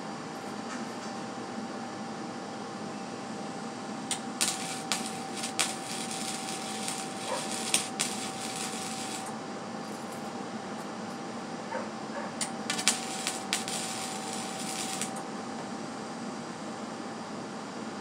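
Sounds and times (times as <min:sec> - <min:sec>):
welder arc crackling: 0:04.1 - 0:09.4, 0:12.4 - 0:15.2.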